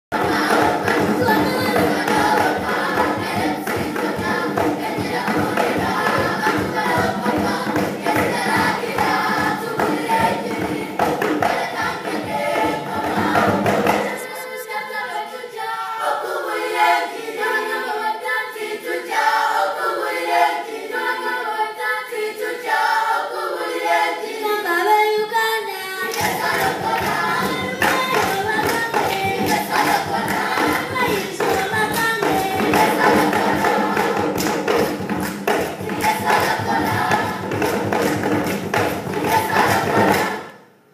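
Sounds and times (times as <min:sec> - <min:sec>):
rhythmic beat: 0:00.1 - 0:15.3, 0:26.1 - 0:40.5
children's choir singing: 0:00.1 - 0:40.7.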